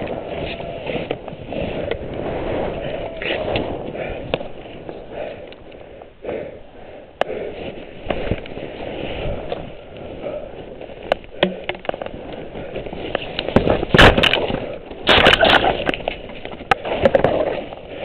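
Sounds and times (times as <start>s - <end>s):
person breathing hard: 1.5s - 13.2s
twigs snapping: 10.9s - 17.5s.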